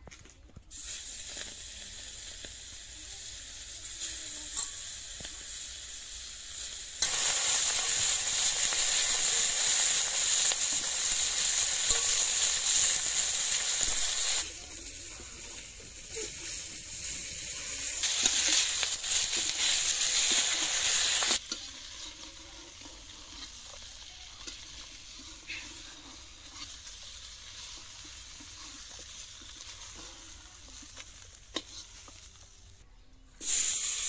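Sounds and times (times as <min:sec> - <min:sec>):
harsh hiss: 0:00.7 - 0:21.5, 0:33.4 - 0:34.0
fish sizzling in oil: 0:00.7 - 0:32.8, 0:33.4 - 0:34.0
metal spatula scraping wok: 0:09.6 - 0:32.6.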